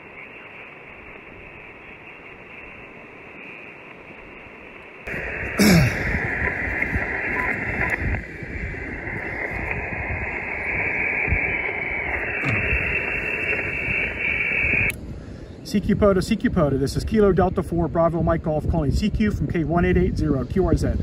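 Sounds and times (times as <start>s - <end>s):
radio band noise hiss: 0.0s - 21.0s
sharp pop: 12.2s - 13.6s.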